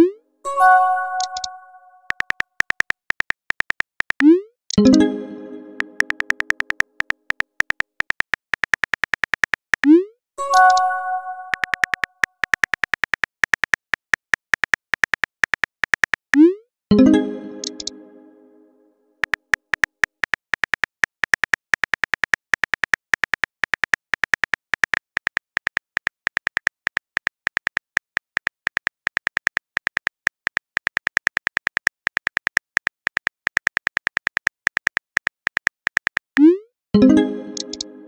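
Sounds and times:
message chime: 0.5 - 2.0, 4.8 - 6.4, 10.4 - 11.8, 16.9 - 18.7, 37.0 - 38.0
synthetic keyboard typing taps: 1.0 - 18.0, 19.2 - 38.0.

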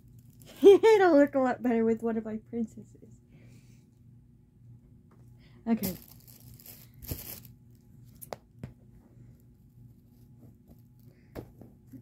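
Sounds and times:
packaging tearing: 5.8 - 7.6.

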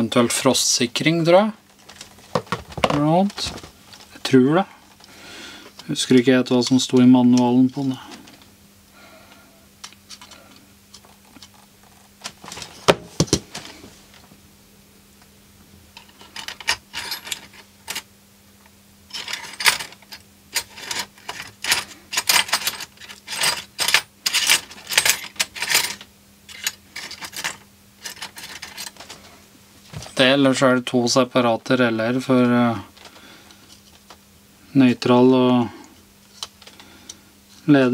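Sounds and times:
faint steady hum: 0.0 - 37.9
tools knocking on workbench: 12.8 - 13.5
tools clinking and rattling: 16.0 - 18.1, 19.1 - 29.3.

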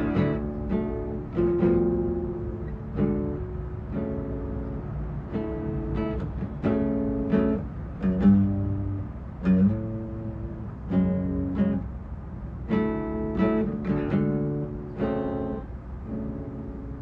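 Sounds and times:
acoustic guitar chords ringing: 0.0 - 17.0.

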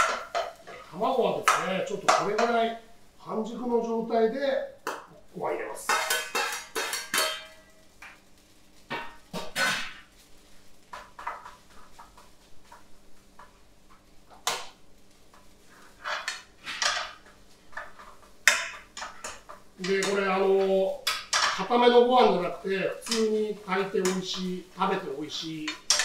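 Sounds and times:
metal ladle scraping frying pan: 5.9 - 7.7, 15.7 - 26.0.

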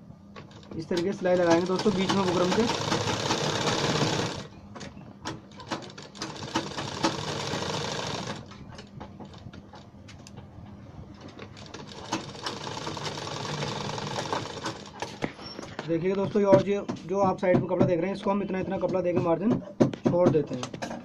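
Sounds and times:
sewing machine stitching: 0.4 - 4.5, 5.3 - 9.4, 11.2 - 15.6.

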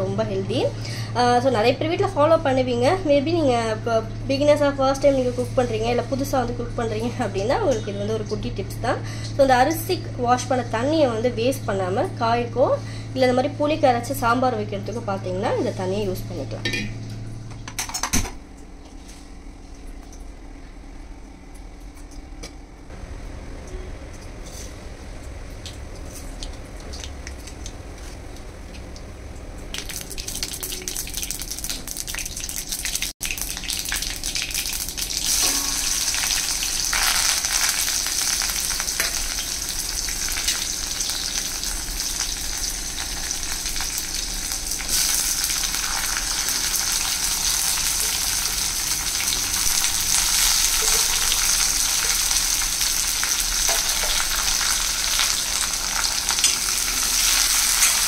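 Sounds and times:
vegetables sizzling in hot oil: 29.7 - 58.0.

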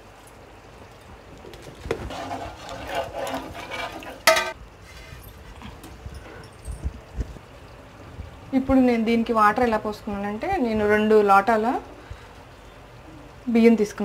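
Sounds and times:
spoon scraping metal pot: 2.0 - 4.6.

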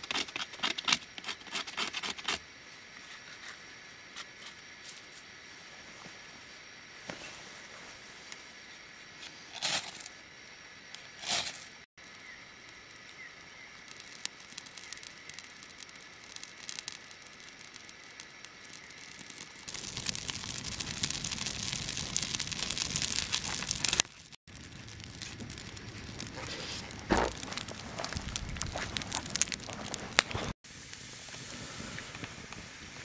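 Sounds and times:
campfire crackling: 11.9 - 33.0
scraping strikes to light fire: 12.9 - 33.0.

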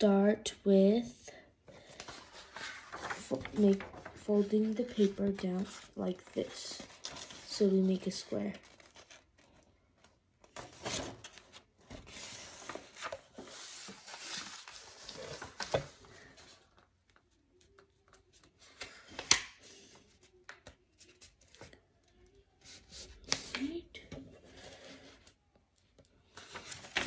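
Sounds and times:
paper rustling and crinkling: 1.7 - 21.9, 26.2 - 27.0.

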